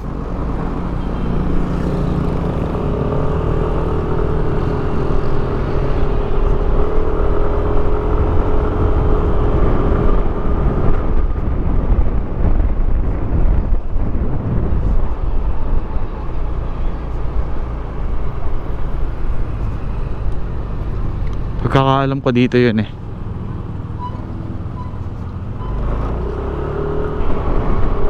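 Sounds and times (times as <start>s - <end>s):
steady scooter whine: 0.0s - 21.7s
road and wind rumble: 0.0s - 28.0s.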